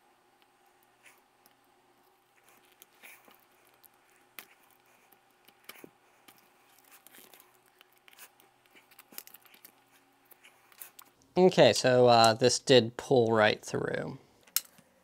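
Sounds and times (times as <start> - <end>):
faint steady hum: 0.0 - 15.0
faint clicks and rustling: 0.4 - 11.3.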